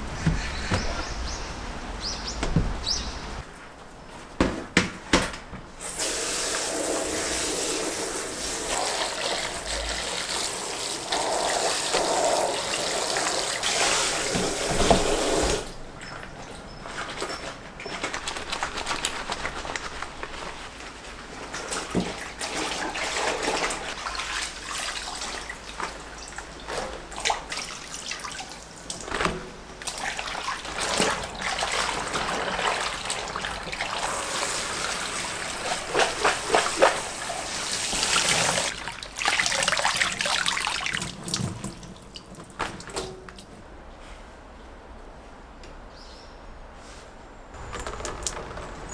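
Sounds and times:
tap water running: 5.8s - 15.8s, 29.8s - 43.0s
water sloshing and splashing: 11.0s - 43.6s.

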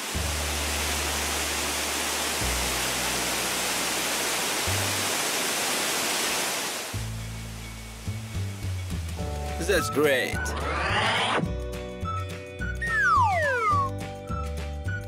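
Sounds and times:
background music low notes: 0.0s - 5.1s, 7.0s - 15.0s
pouring water rush: 0.0s - 10.0s.

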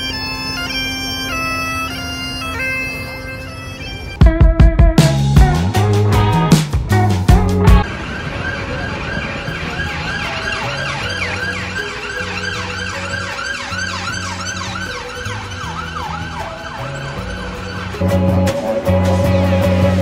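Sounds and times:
siren in a fast yelp: 7.8s - 18.0s.

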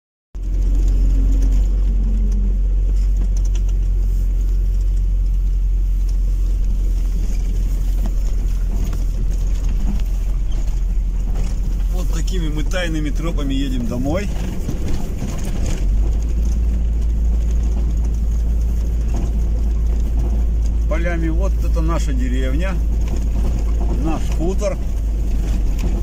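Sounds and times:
car engine and tyres rumbling: 0.3s - 26.0s.

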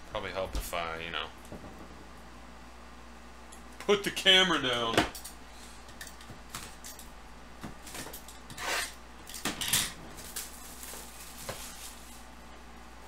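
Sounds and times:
shrink wrap crinkling: 10.1s - 12.4s.

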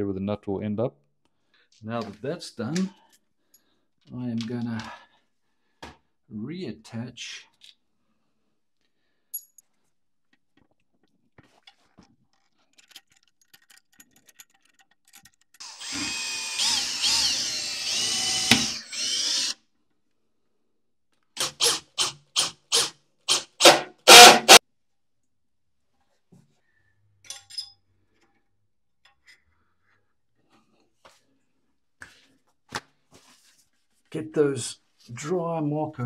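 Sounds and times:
drill-driver motor under load: 15.6s - 19.6s, 21.4s - 24.6s.

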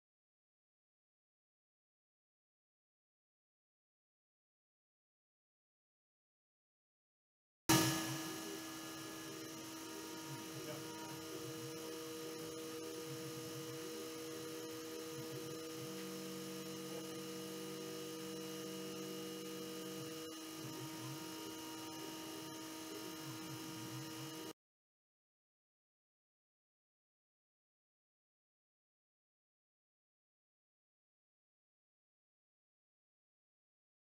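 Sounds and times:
milling machine spindle humming: 7.7s - 24.5s
lower machine tone: 7.7s - 24.6s.

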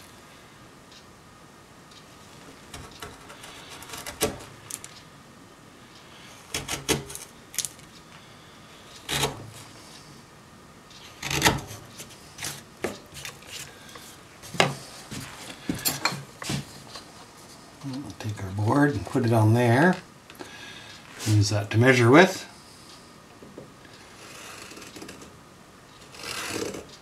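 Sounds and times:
chisel cracking and scraping wood: 2.7s - 4.9s, 6.5s - 7.8s, 9.1s - 9.5s, 11.2s - 13.7s.

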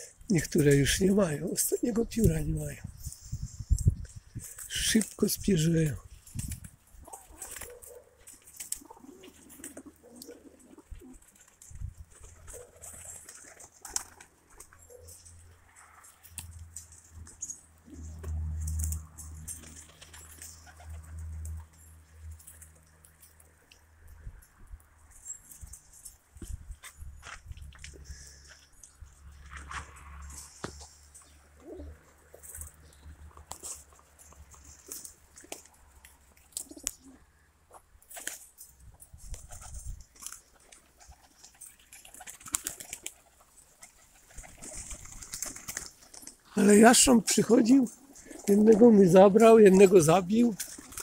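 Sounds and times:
wing flutter: 3.0s - 21.8s, 38.0s - 48.6s
pigeons cooing: 7.0s - 11.5s, 12.1s - 15.3s, 30.6s - 35.6s, 36.4s - 37.5s, 47.8s - 51.0s.

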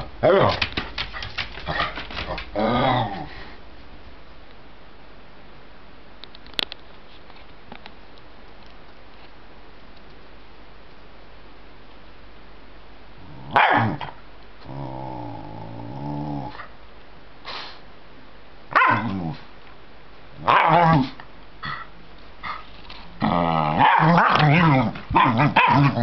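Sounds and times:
dog growling: 1.6s - 3.5s, 13.2s - 16.7s, 23.2s - 26.0s
dog barking: 13.5s - 14.2s, 18.7s - 19.1s, 20.5s - 21.2s, 23.8s - 26.0s.

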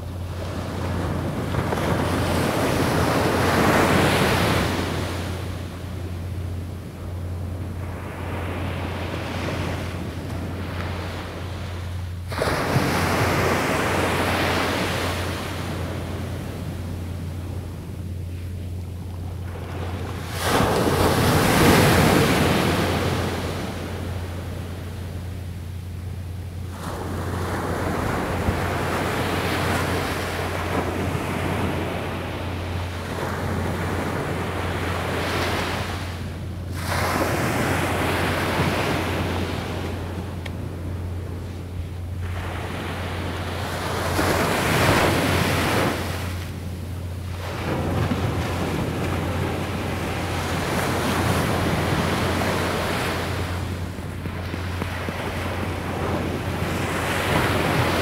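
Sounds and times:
wind rumble on microphone: 0.0s - 58.0s
surf breaking on beach: 12.3s - 16.7s, 19.5s - 24.3s, 26.7s - 41.2s, 47.3s - 58.0s.

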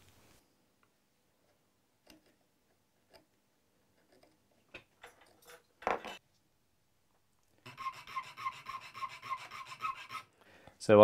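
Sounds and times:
metal parts scraping on wood: 5.0s - 6.2s.

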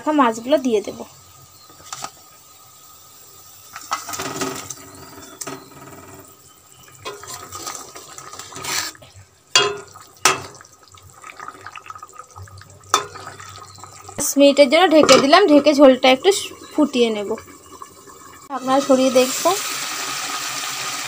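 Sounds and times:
curry gravy bubbling: 0.3s - 21.0s
metal spatula scraping pan: 7.0s - 9.0s
fish sliding off steel plate: 7.1s - 9.0s
spatula knocking against pan: 9.6s - 10.6s.

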